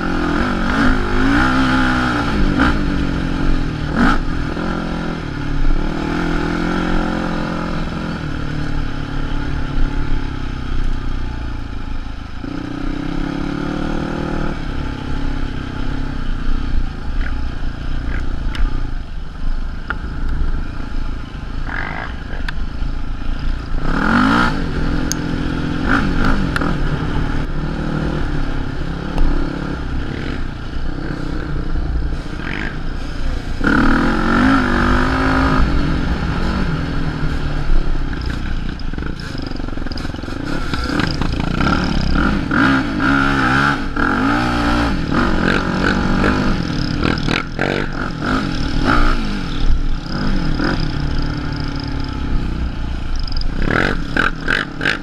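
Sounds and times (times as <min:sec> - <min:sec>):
quad engine revving: 0:00.0 - 0:05.2, 0:23.8 - 0:31.6, 0:32.2 - 0:37.4, 0:38.2 - 0:55.0.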